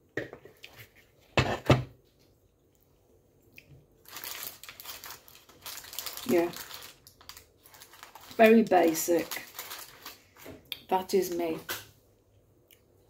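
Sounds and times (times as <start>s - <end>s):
baking paper crinkling: 4.0s - 11.6s.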